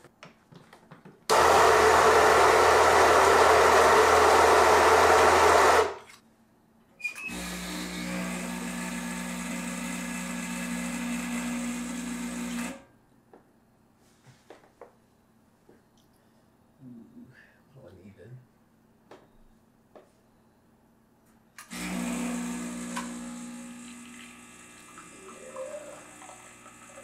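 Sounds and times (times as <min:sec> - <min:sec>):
coffee grinder grinding: 0:01.3 - 0:06.0, 0:07.3 - 0:12.8, 0:21.6 - 0:27.0
espresso machine pump humming: 0:07.3 - 0:12.8, 0:21.7 - 0:27.0.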